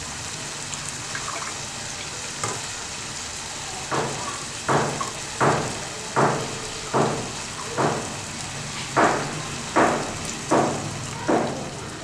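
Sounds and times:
paste and onions sizzling in pan: 0.0 - 12.0.

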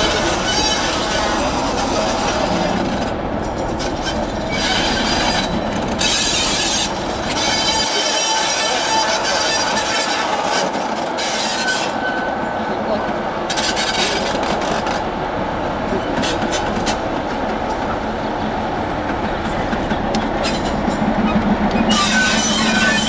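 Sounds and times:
train wheels rumbling on rail: 0.0 - 23.0
clicking over rail joints: 13.0 - 15.2, 16.0 - 18.0, 18.9 - 23.0.

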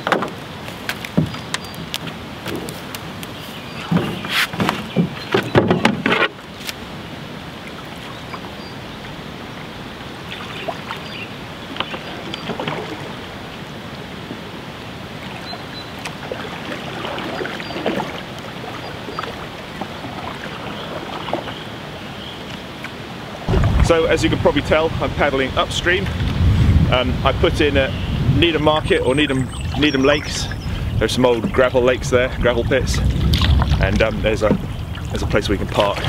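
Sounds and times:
flowing river water: 0.0 - 36.0
paddle splashes: 0.0 - 36.0
knocks on wooden canoe hull: 3.8 - 6.3.

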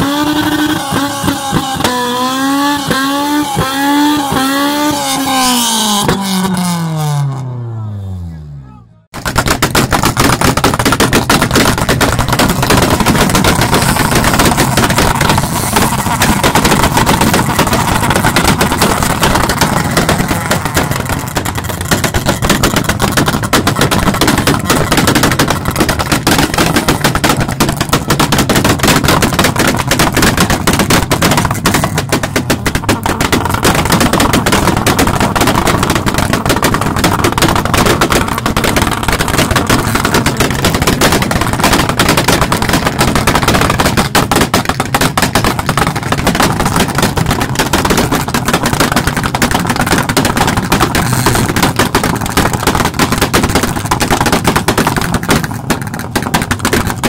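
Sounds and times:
exhaust pops and bangs: 0.0 - 7.5, 9.1 - 57.0
car engine revving: 0.0 - 8.6, 12.5 - 24.7.

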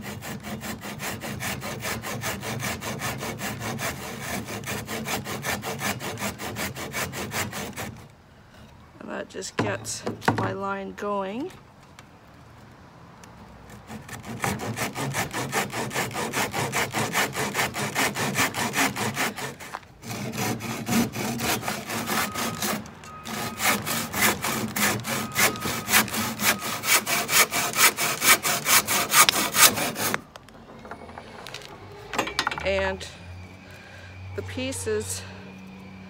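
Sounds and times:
handsaw cutting wood: 0.0 - 8.1, 13.7 - 30.2.

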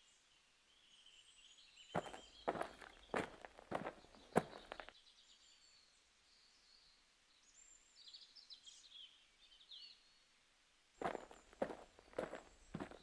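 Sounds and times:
faint bird chirps: 0.7 - 10.2
footstep on paving: 2.0 - 4.9, 11.0 - 13.0.

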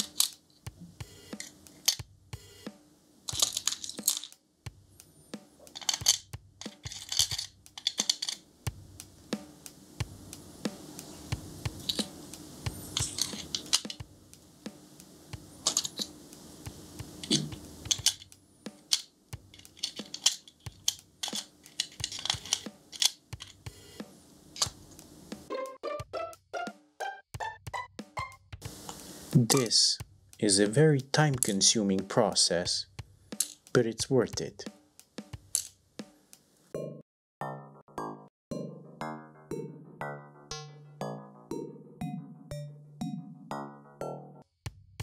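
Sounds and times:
small screws clinking on metal: 0.0 - 0.4, 1.4 - 2.0, 3.3 - 4.4, 5.7 - 8.4, 12.9 - 14.0, 15.6 - 16.1, 17.2 - 23.6, 33.4 - 33.6, 35.5 - 35.7.

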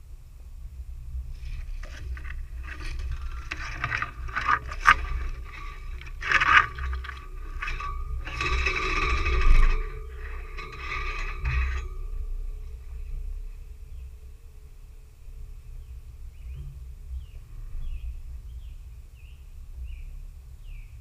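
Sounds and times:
low rumble: 0.0 - 20.8
scraping against a vehicle body: 1.3 - 13.2.

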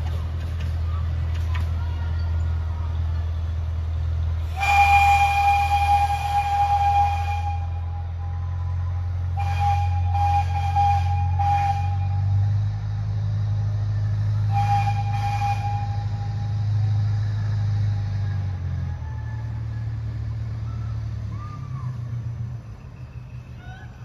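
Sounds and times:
locomotive engine rumble: 0.0 - 24.0
train horn blast: 4.4 - 12.5, 14.4 - 16.6.

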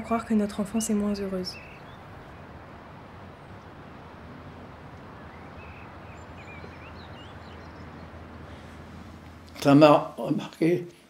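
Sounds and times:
wind: 0.0 - 11.0
faint bird chirps: 1.2 - 9.5.

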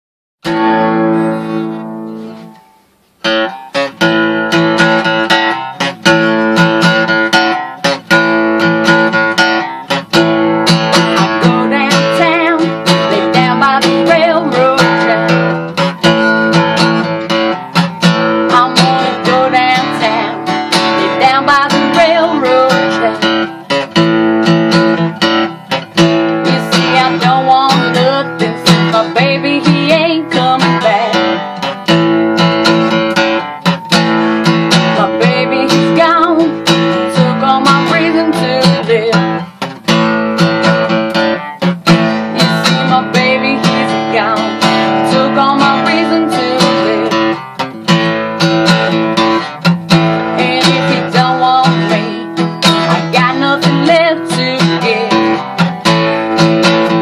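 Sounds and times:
acoustic guitar strumming: 0.4 - 57.0
woman singing: 10.7 - 16.2, 18.3 - 23.6, 26.0 - 31.6, 34.7 - 39.5, 41.9 - 48.1, 49.9 - 55.7.

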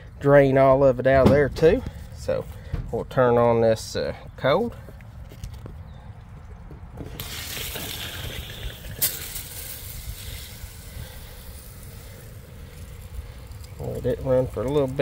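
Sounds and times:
shower water spraying hiss: 7.2 - 14.2.

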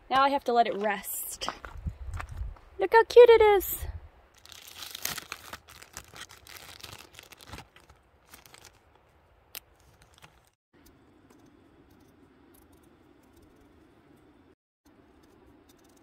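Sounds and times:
plastic bag crinkling: 4.4 - 8.8
knife peeling a potato: 15.0 - 16.0.

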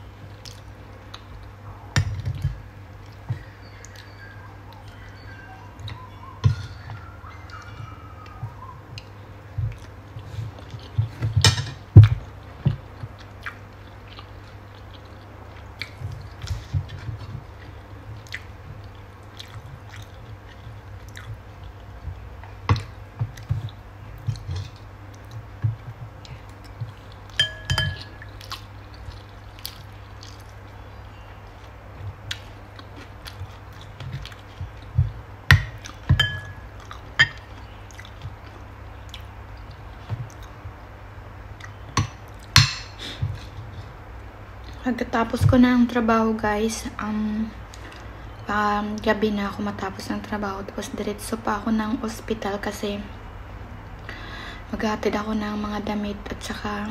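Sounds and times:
steady low hum: 0.0 - 56.9
person chewing: 0.2 - 5.2, 5.8 - 40.9.

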